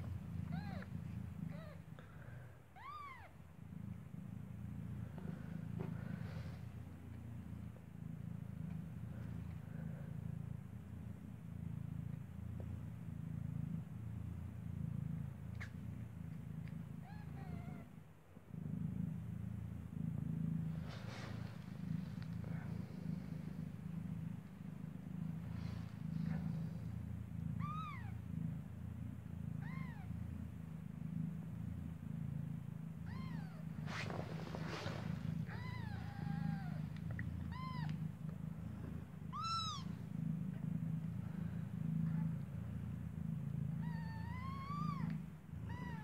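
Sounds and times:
cat purring: 0:00.0 - 0:46.0
kitten mewing: 0:00.4 - 0:01.9, 0:27.6 - 0:28.2, 0:33.1 - 0:33.6, 0:35.4 - 0:38.0, 0:39.3 - 0:40.0, 0:43.8 - 0:46.0
rustling of fur and bedding: 0:20.6 - 0:27.4, 0:33.2 - 0:40.2.

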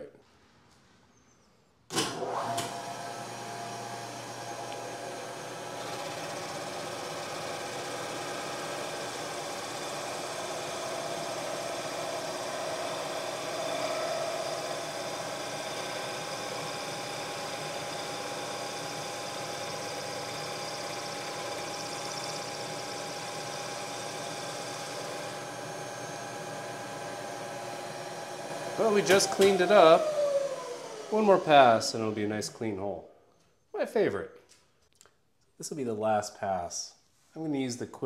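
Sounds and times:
milling machine hum: 0:02.2 - 0:32.1.

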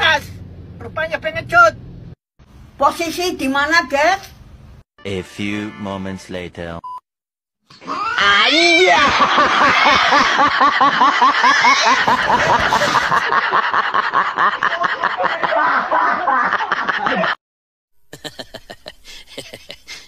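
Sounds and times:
person laughing hard: 0:08.6 - 0:17.4, 0:18.1 - 0:20.0.

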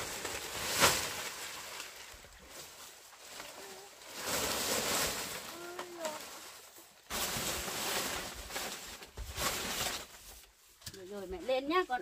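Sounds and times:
palm fronds rustling and scraping: 0:00.0 - 0:12.0
faint voice-like sounds: 0:03.5 - 0:04.0.

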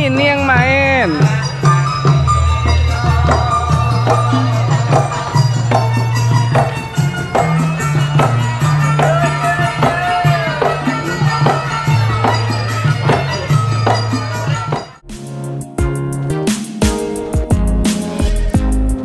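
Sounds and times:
gamelan ensemble playing: 0:00.0 - 0:15.1.

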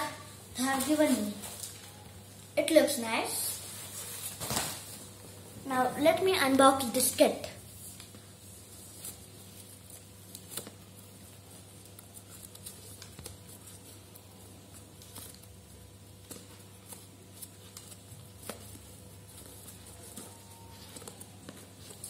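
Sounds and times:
steady low hum: 0:00.0 - 0:22.0
ribbon rustling: 0:07.0 - 0:22.0.

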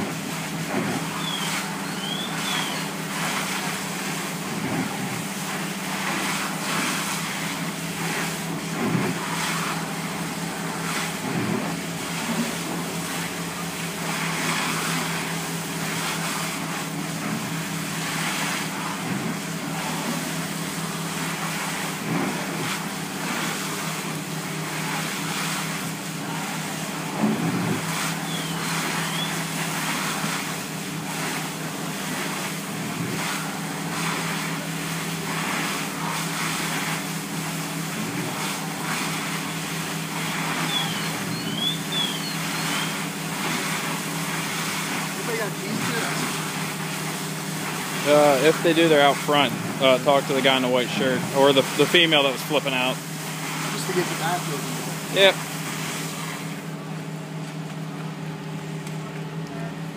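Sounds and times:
fire engine pump droning: 0:00.0 - 0:59.9
hose spraying water: 0:00.0 - 0:59.9.

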